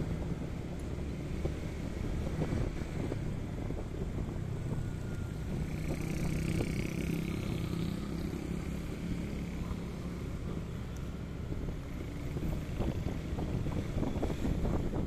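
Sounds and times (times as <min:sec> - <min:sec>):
car and motorcycle engines: 0:00.0 - 0:15.0
road noise: 0:00.0 - 0:15.0.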